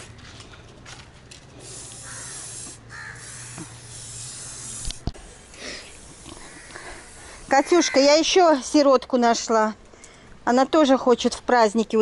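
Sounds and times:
spray-paint can hissing: 1.5 - 8.2.

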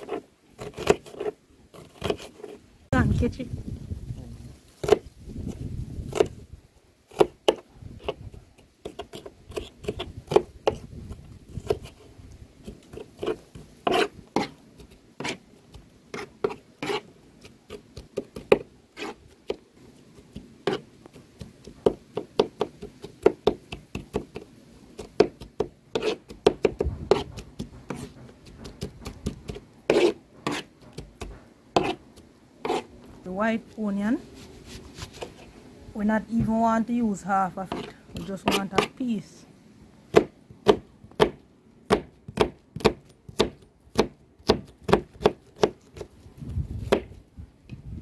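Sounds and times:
knife scraping chopped pieces: 0.0 - 2.6, 7.1 - 10.9, 11.5 - 15.4, 16.1 - 24.4, 25.0 - 32.0, 32.6 - 32.9, 37.6 - 39.0
knife chopping on cutting board: 25.1 - 32.0, 40.1 - 46.0.

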